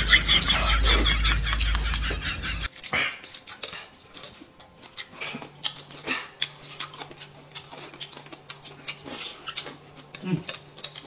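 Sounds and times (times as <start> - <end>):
wet chewing and slurping: 2.7 - 11.0.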